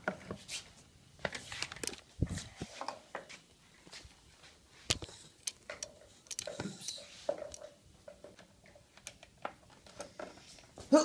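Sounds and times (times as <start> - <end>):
handling clicks and knocks: 4.9 - 10.8.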